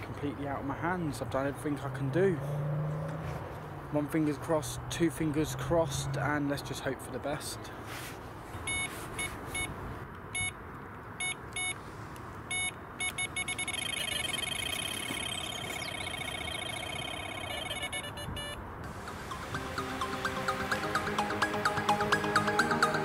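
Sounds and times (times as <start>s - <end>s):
electronic bite alarm beeping: 8.7s - 9.7s, 10.4s - 10.6s, 11.2s - 11.8s, 12.5s - 18.6s.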